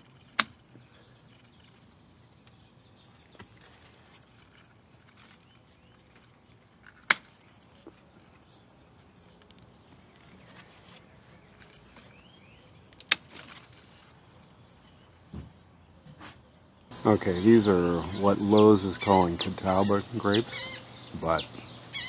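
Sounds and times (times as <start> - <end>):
leaves rustling: 2.7 - 15.2.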